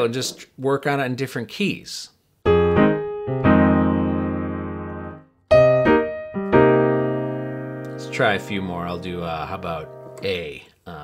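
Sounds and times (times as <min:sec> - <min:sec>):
jazz piano chords: 0:02.4 - 0:10.4.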